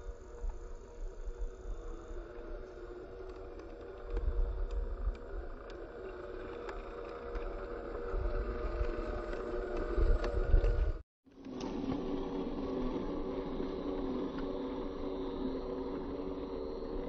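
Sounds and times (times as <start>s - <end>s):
wind rumbling on microphone: 0.0s - 11.0s
electric motor whining: 0.0s - 17.0s
gravel ticks: 1.2s - 11.0s.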